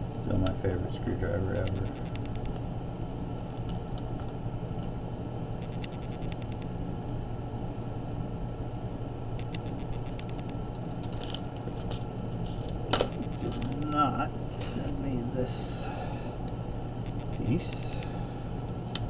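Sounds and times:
steady low hum: 0:00.0 - 0:19.0
sharp click: 0:09.4 - 0:10.6.

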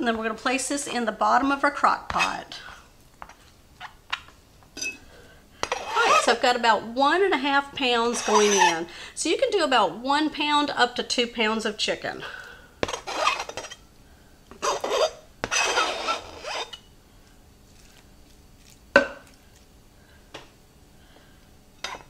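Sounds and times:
scraper rasping on plastic board: 0:05.7 - 0:06.4, 0:08.1 - 0:08.8, 0:12.8 - 0:13.6, 0:14.6 - 0:16.8.

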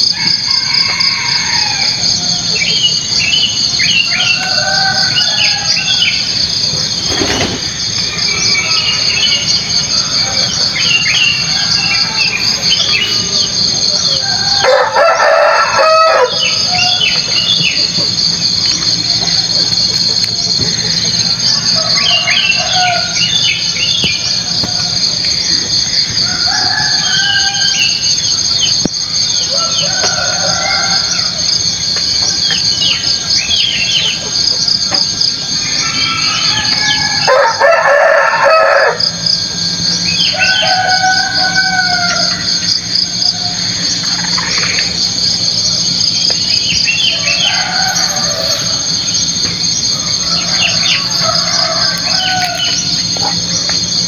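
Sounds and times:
rooster crowing: 0:00.0 - 0:07.0, 0:07.6 - 0:19.2, 0:20.6 - 0:34.2, 0:35.4 - 0:54.0
high-pitched insect chorus: 0:00.0 - 0:54.0
birds calling: 0:00.6 - 0:53.8.

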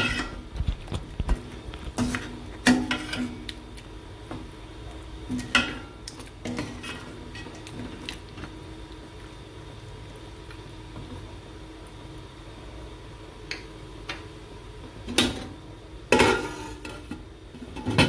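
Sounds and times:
ladle clinking and scraping pot: 0:00.0 - 0:00.4, 0:01.9 - 0:03.4, 0:05.3 - 0:07.9, 0:16.2 - 0:18.0.

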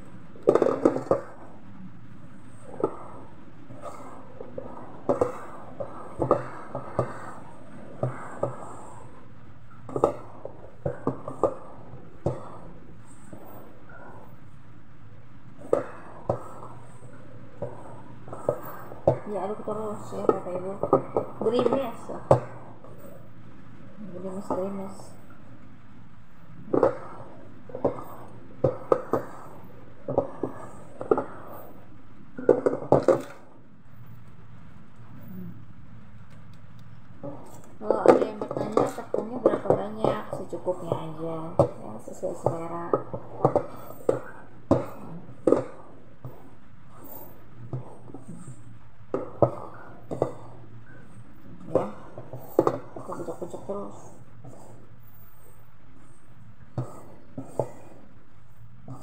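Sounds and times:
hand mixing dough in metal pot: 0:37.2 - 0:54.9.

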